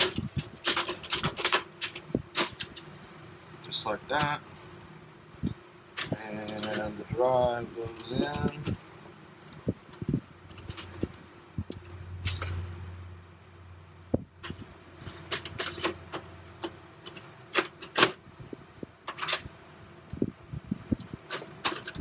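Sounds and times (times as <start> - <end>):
metal drive scraping and clicking: 0.0 - 4.4, 5.5 - 12.7, 14.4 - 18.2, 19.0 - 19.6.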